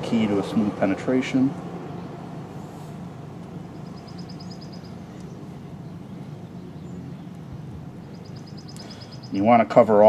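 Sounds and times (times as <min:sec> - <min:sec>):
low outdoor background hum: 0:00.0 - 0:10.0
small bird trilling: 0:03.6 - 0:09.5.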